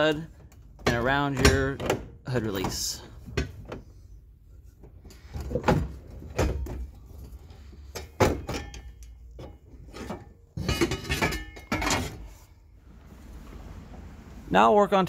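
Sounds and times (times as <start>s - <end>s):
metal clanking and scraping: 4.8s - 14.4s.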